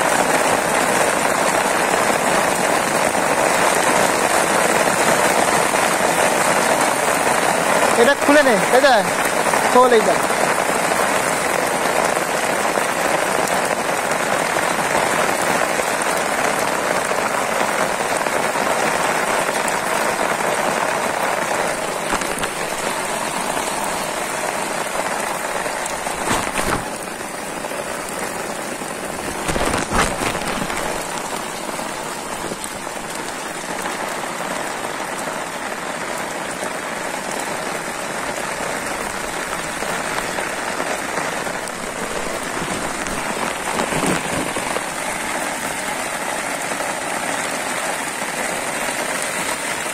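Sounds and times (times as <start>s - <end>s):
heavy rain on water: 0.0s - 49.9s.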